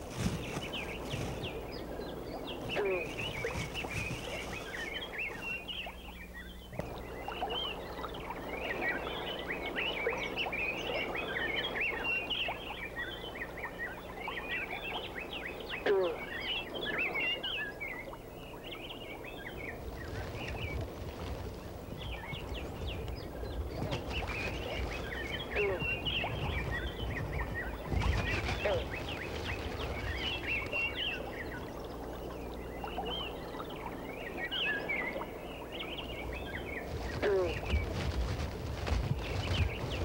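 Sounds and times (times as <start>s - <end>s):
birds chirping in chorus: 0.0s - 40.0s
steady low hum: 0.0s - 40.0s.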